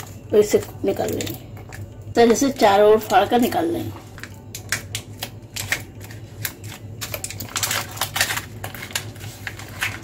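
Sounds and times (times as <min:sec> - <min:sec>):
aluminium foil crinkling and tearing: 0:04.1 - 0:10.0.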